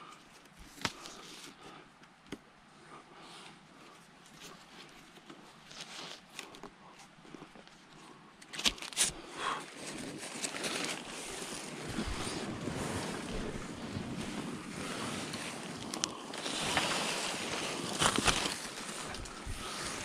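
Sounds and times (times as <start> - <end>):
tarp rustling and scuffing: 9.7 - 20.0.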